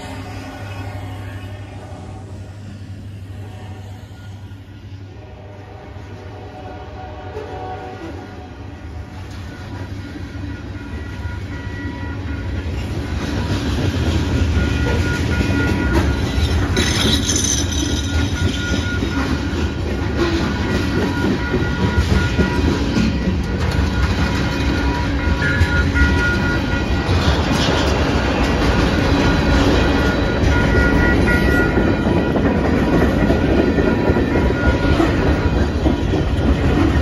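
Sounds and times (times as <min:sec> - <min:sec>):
freight train wheels rumbling: 0:00.0 - 0:37.0
wheels clacking over rail joints: 0:12.2 - 0:37.0.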